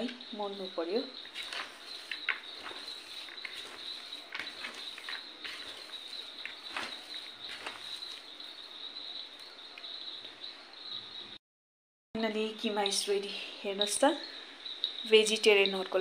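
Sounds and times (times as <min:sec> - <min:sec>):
insect chirring: 0:00.0 - 0:11.4, 0:12.2 - 0:16.0
hand kneading filling in bowl: 0:01.3 - 0:08.4.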